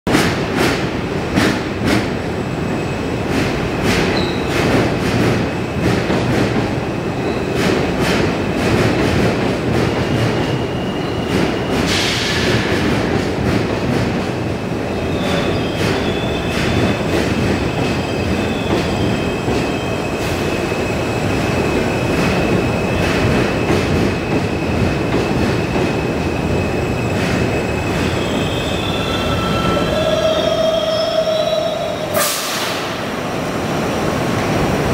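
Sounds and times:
train wheels rumbling on rail: 0.1s - 34.9s
high wheel squeal: 26.3s - 32.8s.

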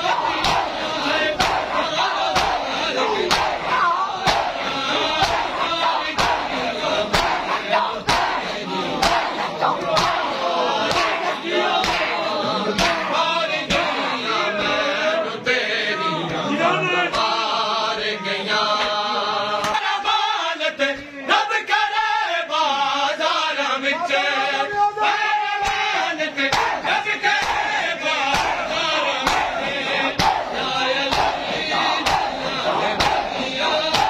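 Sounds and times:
men chanting in unison: 0.0s - 34.0s
hands slapping chests: 0.3s - 10.3s, 10.9s - 11.2s, 11.8s - 12.2s, 12.8s - 13.1s, 19.6s - 19.8s, 25.6s - 25.9s, 26.5s - 26.8s, 27.4s - 28.6s, 29.2s - 29.6s, 30.2s - 34.0s.

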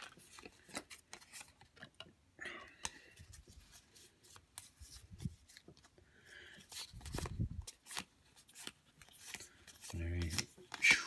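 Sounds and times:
trading cards clicking and rustling: 0.0s - 2.0s, 6.6s - 11.0s.

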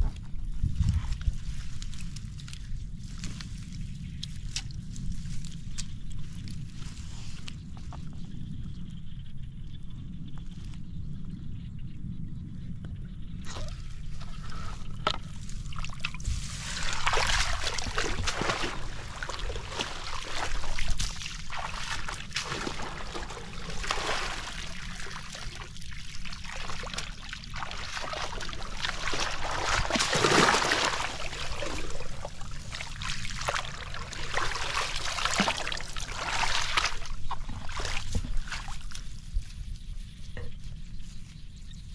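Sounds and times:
footsteps wading through water: 13.4s - 39.7s.

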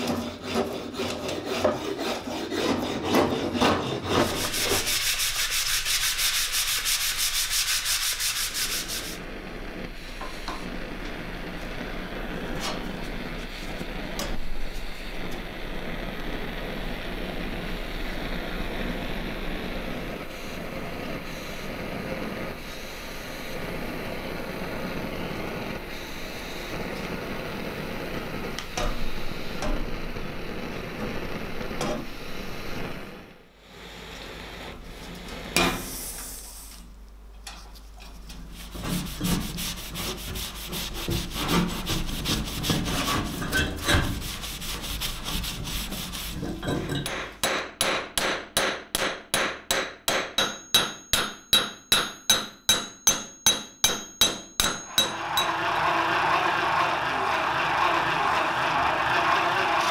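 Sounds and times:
blowlamp burning with rushing noise: 4.2s - 37.0s, 38.2s - 47.4s.

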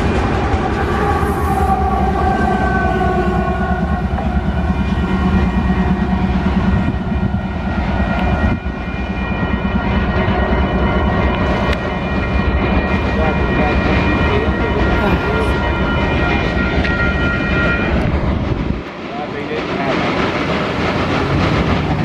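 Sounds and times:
whining tones sliding lower: 0.0s - 12.9s
freight locomotives rumbling past: 0.0s - 22.0s
steady tones: 0.0s - 22.0s.

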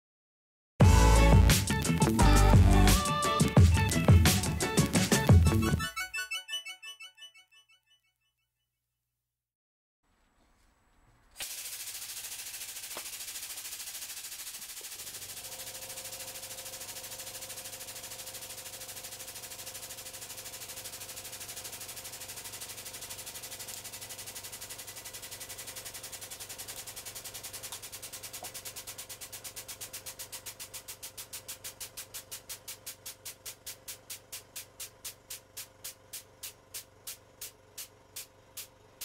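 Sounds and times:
hydraulic pump rattling: 11.4s - 39.0s
steady hum: 26.4s - 39.0s.

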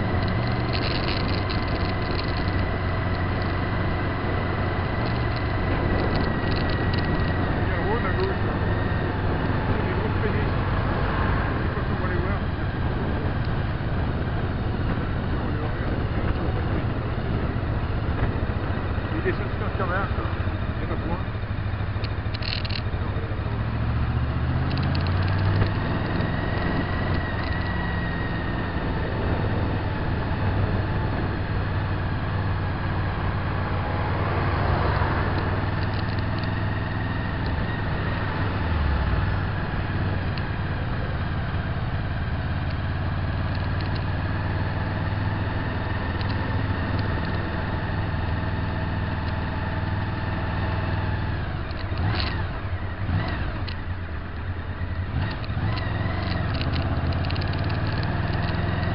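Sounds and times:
road and wind noise: 0.0s - 58.9s
vehicle engine running: 0.0s - 58.9s.

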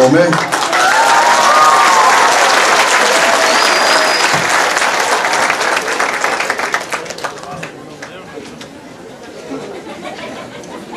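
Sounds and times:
audience applauding: 0.0s - 8.2s
short high whistle: 3.4s - 4.5s.

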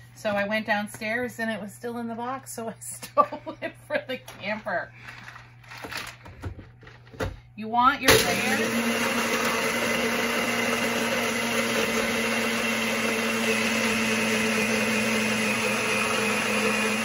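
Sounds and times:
blender crushing ice: 8.0s - 17.0s.

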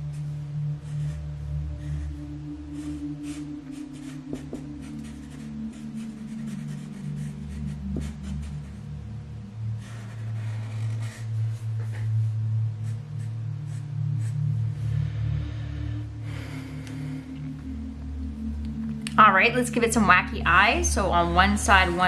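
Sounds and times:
soft low background music: 0.0s - 22.0s
marker drawing on paper: 2.8s - 8.8s, 9.8s - 14.4s.

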